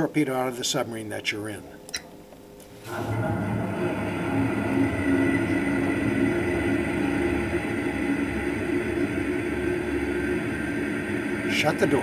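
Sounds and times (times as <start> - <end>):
low rumble with rushing noise: 2.9 - 12.0.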